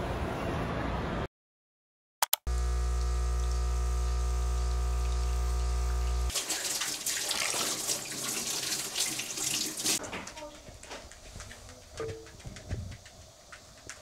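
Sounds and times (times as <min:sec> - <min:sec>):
espresso machine pump humming: 0:02.5 - 0:06.4
liquid splashing in metal tumbler: 0:06.3 - 0:10.1.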